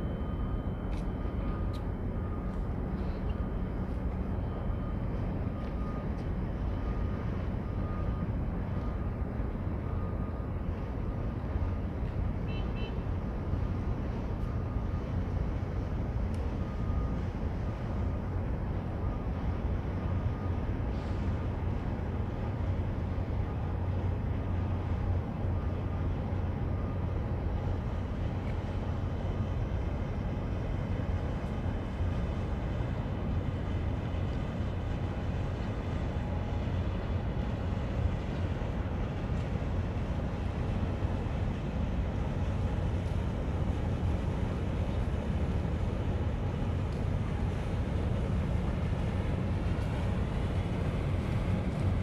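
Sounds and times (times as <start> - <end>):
boat engine drone: 0.0 - 52.0.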